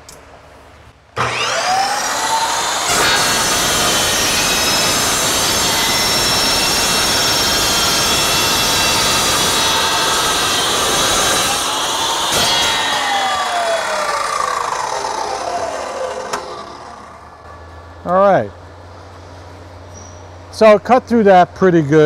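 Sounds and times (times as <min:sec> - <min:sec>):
saw blade cutting steel: 0:01.2 - 0:17.7
saw motor whine: 0:01.2 - 0:18.0.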